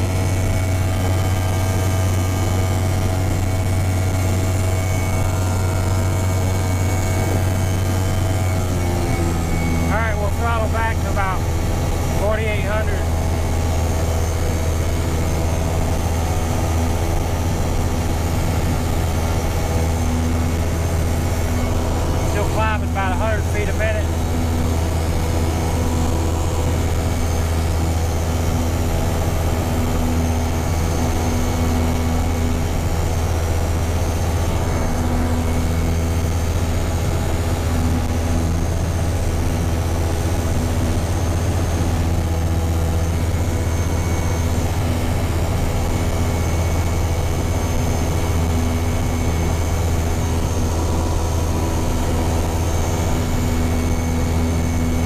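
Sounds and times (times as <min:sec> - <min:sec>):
aircraft engine and propeller drone: 0:00.0 - 0:55.0.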